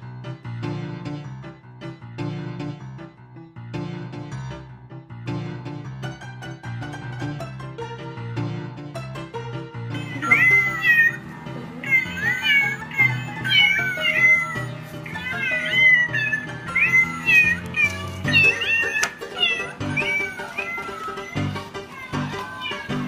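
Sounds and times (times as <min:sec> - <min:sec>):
background music: 0:00.0 - 0:23.0
cat meowing: 0:10.0 - 0:23.0.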